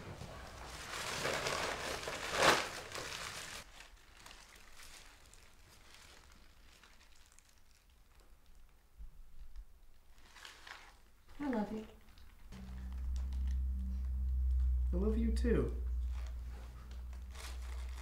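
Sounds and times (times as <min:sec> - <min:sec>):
paper bag crinkling and rustling: 0:00.4 - 0:08.2, 0:10.1 - 0:11.1, 0:17.1 - 0:18.0.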